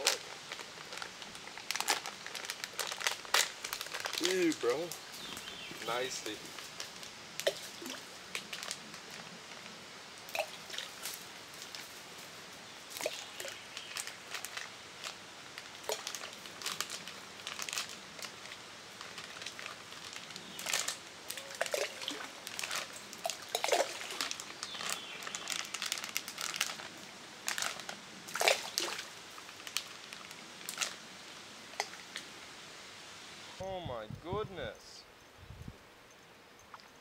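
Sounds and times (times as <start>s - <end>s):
plastic bag crinkling: 0.0s - 4.9s, 5.8s - 9.2s, 13.0s - 31.0s.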